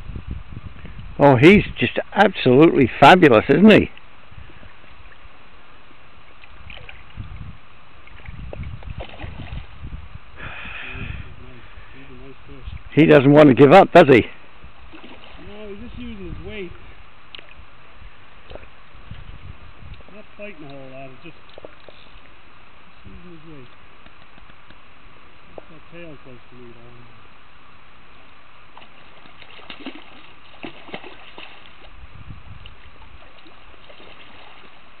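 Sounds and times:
wind buffeting microphone: 0.0 - 2.0, 6.5 - 13.0, 14.5 - 21.4, 30.6 - 34.6
brief splash: 8.1 - 9.7, 14.9 - 15.5, 28.8 - 31.9, 33.2 - 34.9.

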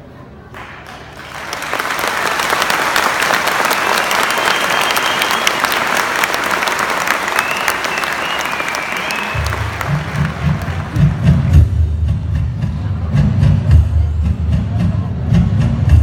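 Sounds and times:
large audience applauding: 0.6 - 11.5
faint high whistles: 3.8 - 6.0, 7.2 - 9.6
low music: 9.4 - 16.0.

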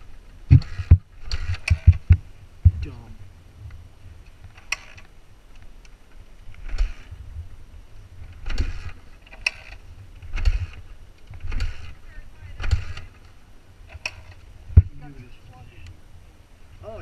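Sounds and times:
dirt bike kick-start engine turning: 0.5 - 2.2, 4.5 - 5.1, 6.1 - 7.2, 8.2 - 14.5.

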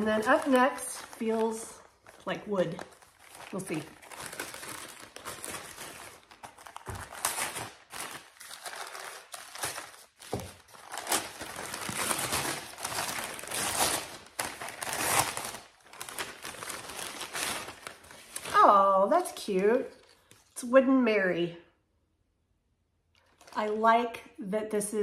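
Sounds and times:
paper crinkling and rustling: 0.0 - 18.6, 23.2 - 23.8.

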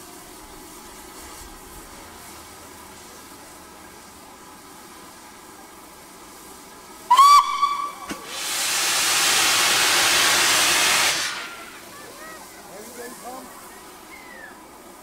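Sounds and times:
steam hissing: 0.0 - 15.0
steam locomotive whistle: 7.1 - 11.8.

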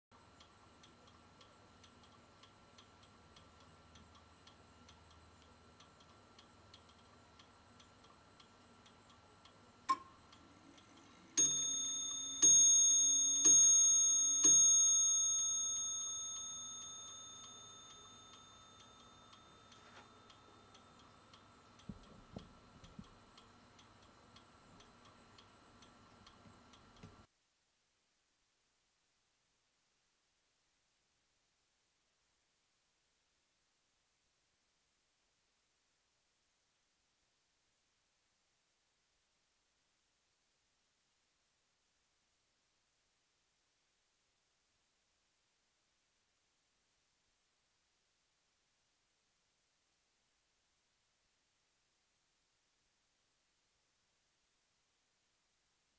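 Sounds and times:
clock ticking: 0.2 - 27.3
clock striking: 9.9 - 22.5.

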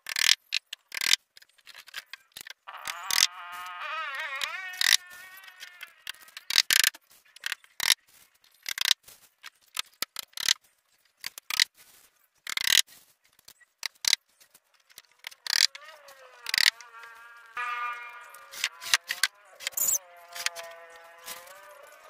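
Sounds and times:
plywood sheet clicking and scraping: 0.0 - 3.3, 18.4 - 21.7.

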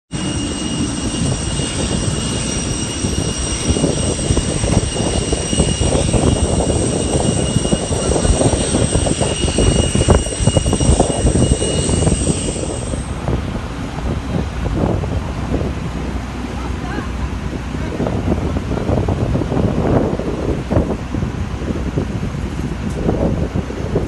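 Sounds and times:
high-pitched whine: 0.1 - 17.3
vehicle rumble with buffeting: 0.1 - 24.0.

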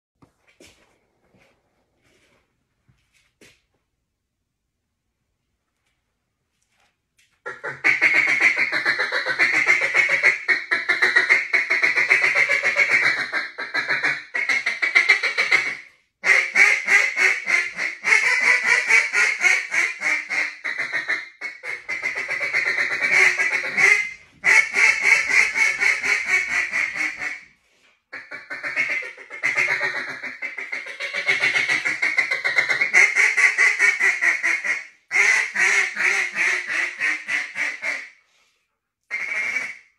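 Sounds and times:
duck call rapid quacking: 7.4 - 27.5, 28.1 - 38.2, 39.1 - 39.9.

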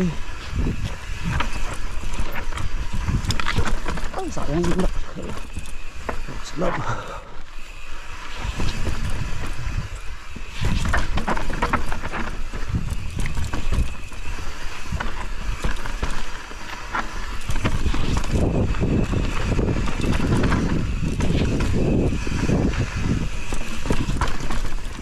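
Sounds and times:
wind on microphone: 0.0 - 5.7, 8.2 - 16.1, 17.2 - 25.0
bike clicks and rattles: 0.0 - 25.0
bike tyres rumbling over rock: 0.0 - 25.0.

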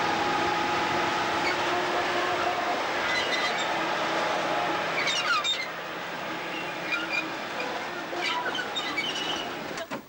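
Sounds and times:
high wheel squeals: 0.0 - 9.8
steel wheels rumbling on rail: 0.0 - 9.9.

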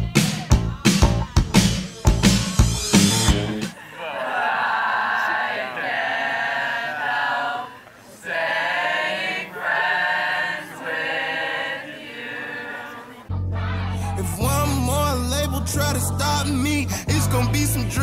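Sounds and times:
young voices singing together: 3.8 - 16.7.

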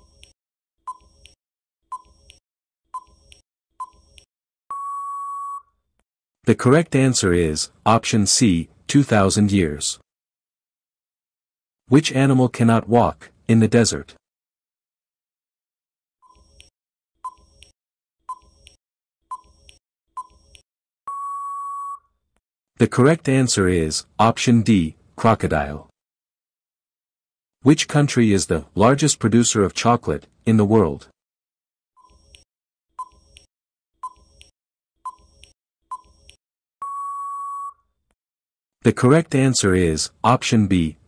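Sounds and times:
short ticking beeps: 3.0 - 4.0, 19.3 - 20.4, 33.0 - 37.8
steady beep: 4.7 - 5.6, 21.1 - 22.0, 36.8 - 37.8.

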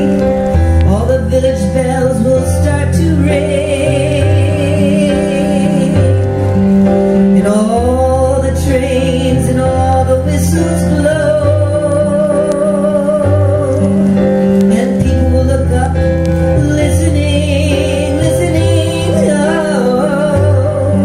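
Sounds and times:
electric keyboard chords: 0.0 - 21.0
woman singing long held notes: 0.0 - 21.0.

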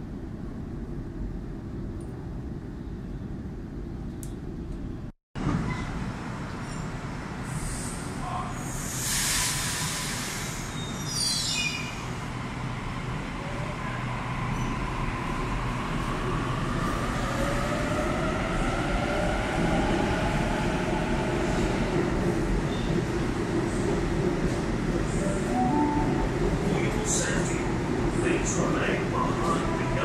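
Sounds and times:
air hiss: 8.7 - 10.8.

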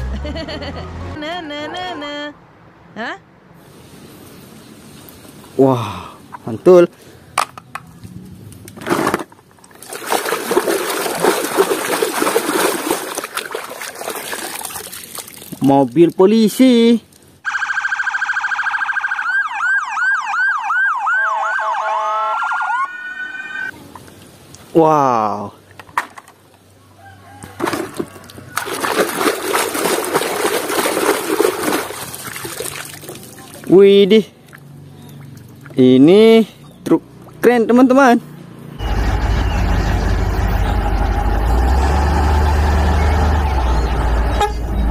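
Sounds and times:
splashing in muddy water: 8.8 - 16.2, 27.4 - 33.8, 34.4 - 35.8.

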